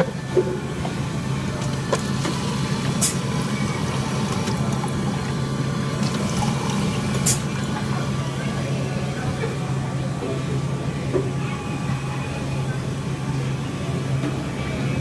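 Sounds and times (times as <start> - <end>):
machine humming: 0.0 - 15.0
drink pouring into paper cup: 1.5 - 7.9.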